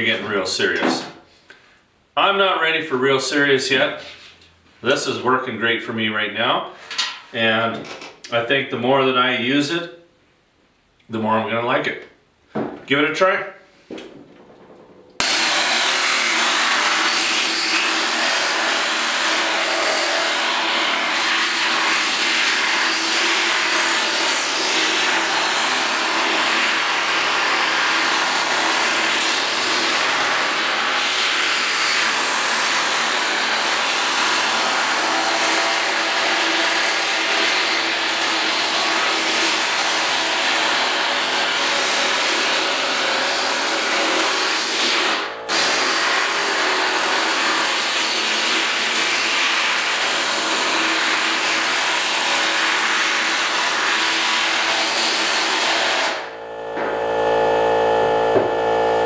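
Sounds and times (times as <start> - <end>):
air hammer hammering steel panel: 14.0 - 36.6.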